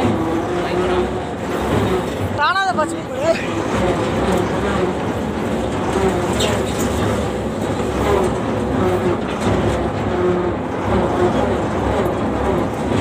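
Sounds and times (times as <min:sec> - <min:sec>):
combine harvester engine running: 0:00.0 - 0:13.0.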